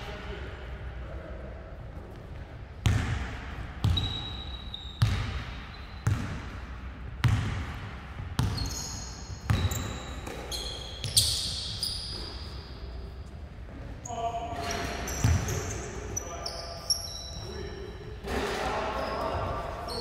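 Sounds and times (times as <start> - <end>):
sneaker squeaks: 3.8 - 6.4, 8.4 - 13.4, 14.0 - 20.0
basketball dribbling on gym floor: 7.2 - 8.8.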